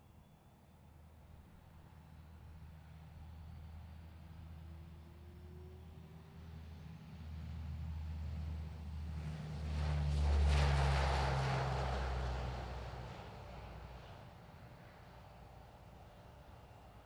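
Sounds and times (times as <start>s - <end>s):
turboprop aircraft taking off: 5.0s - 17.0s.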